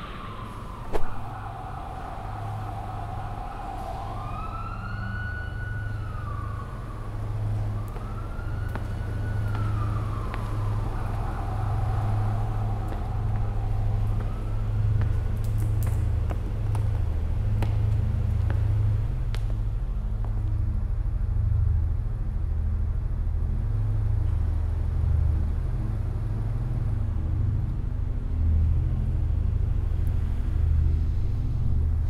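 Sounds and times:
siren wailing: 0:00.0 - 0:15.8
low rumbling drone: 0:00.0 - 0:32.0.

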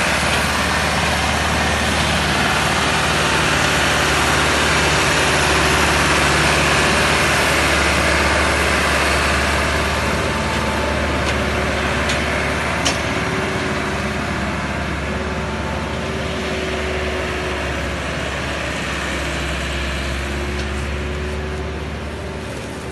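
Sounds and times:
tractor diesel engine running: 0:00.0 - 0:22.9.

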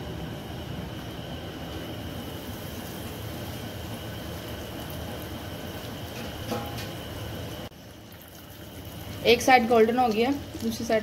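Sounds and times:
cutlets sizzling in hot oil: 0:02.1 - 0:11.0.

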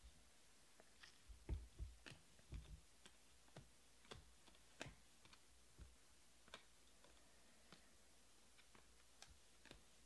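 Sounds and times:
trading cards flipped by hand: 0:08.5 - 0:10.0.

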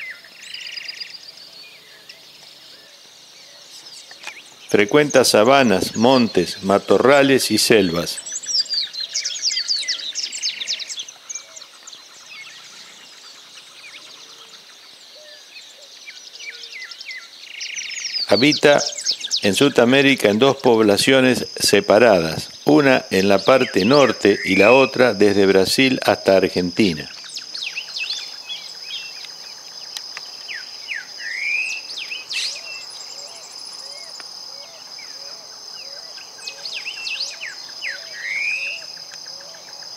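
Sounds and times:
birds chirping: 0:00.0 - 0:39.9
high-pitched insect drone: 0:17.2 - 0:39.9.

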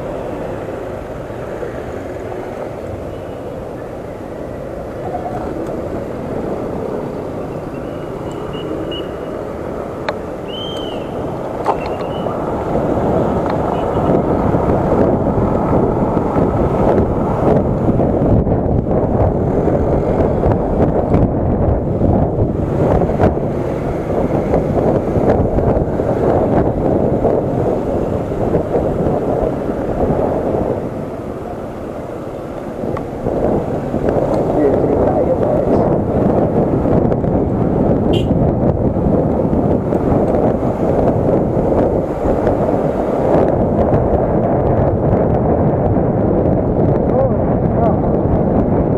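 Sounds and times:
wind and road rumble: 0:00.0 - 0:48.9
faint high chirp: 0:10.5 - 0:11.1.

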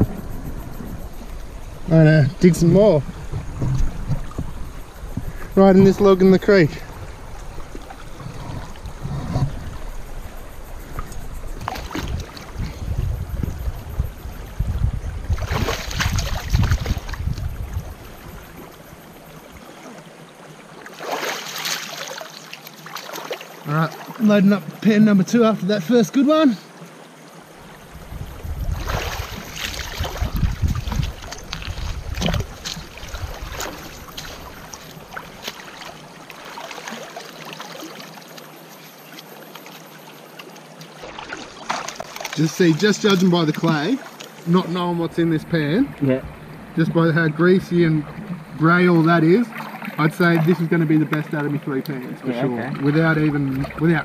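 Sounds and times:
low rumbling: 0:00.0 - 0:15.5
creek water flowing: 0:00.0 - 0:54.0
water splashing and sloshing: 0:00.0 - 0:54.0.

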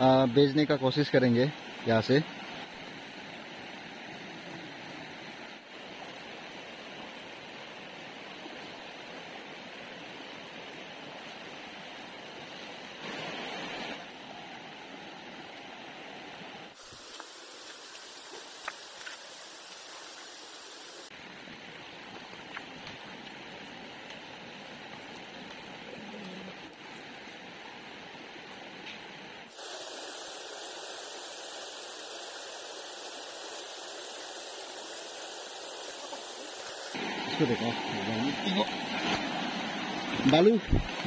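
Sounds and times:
stream running over stones: 0:00.0 - 0:41.0.

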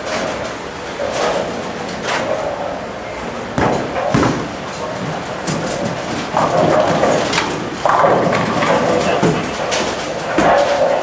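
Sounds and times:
bowling balls rolling: 0:00.0 - 0:11.0
sharp knocks: 0:03.6 - 0:10.6.

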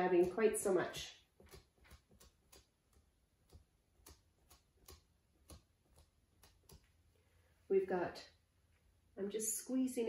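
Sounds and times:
sponge dabbing paint on canvas: 0:00.0 - 0:07.3.

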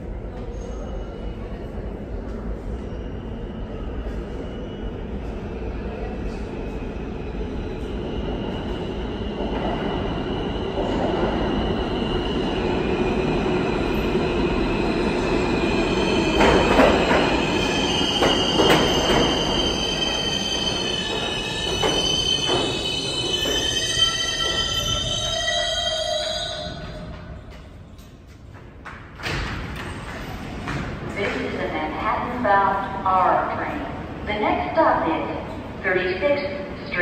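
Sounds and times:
subway train rumble: 0:00.0 - 0:37.0
train cars clanking: 0:16.2 - 0:31.6.

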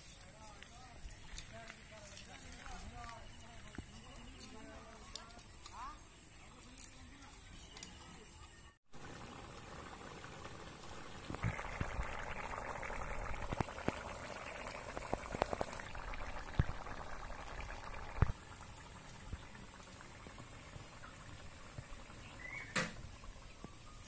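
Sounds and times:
curry boiling with bubbling pops: 0:08.9 - 0:24.0.

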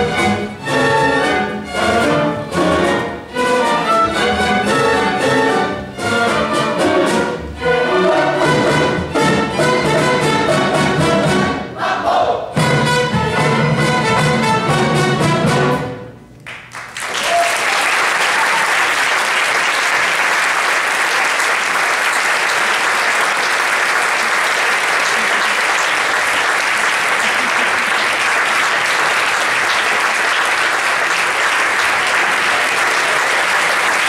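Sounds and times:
audience applauding: 0:16.4 - 0:34.0.

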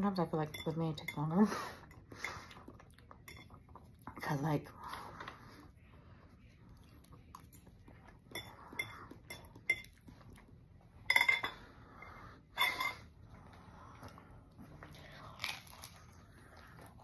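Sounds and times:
fork clinking and scraping on plate: 0:11.1 - 0:11.7, 0:12.5 - 0:13.1.

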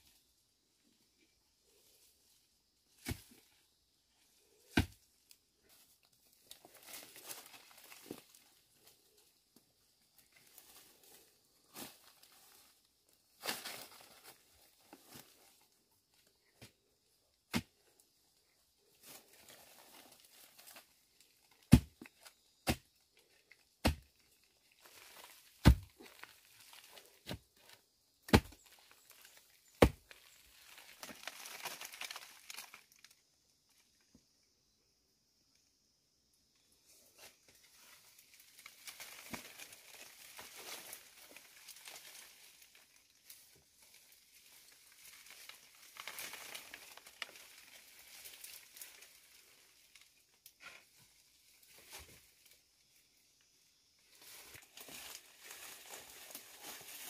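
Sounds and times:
rustling and crinkling: 0:10.0 - 0:17.0, 0:17.6 - 0:22.4, 0:23.2 - 0:33.1, 0:36.9 - 0:52.6, 0:54.1 - 0:57.0.

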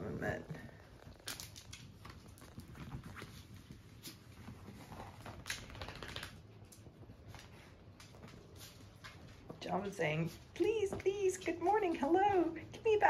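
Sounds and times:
dog paws pattering: 0:00.0 - 0:13.0
soft clicks and scuffs: 0:01.4 - 0:12.3.

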